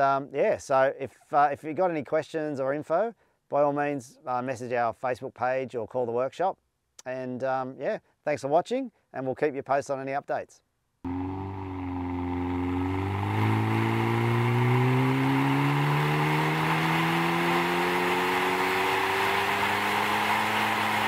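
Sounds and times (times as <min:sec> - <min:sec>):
car engine revving on dyno: 0:11.1 - 0:21.0.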